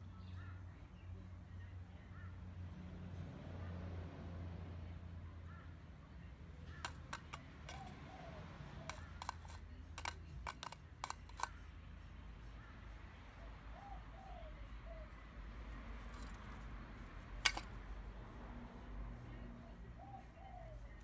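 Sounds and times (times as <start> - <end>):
bird beak tapping plastic bowl: 6.8 - 7.9, 8.8 - 11.5, 17.4 - 17.7.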